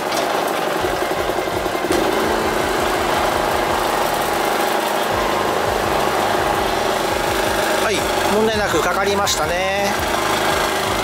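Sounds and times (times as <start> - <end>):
generator engine running: 0.0 - 11.0.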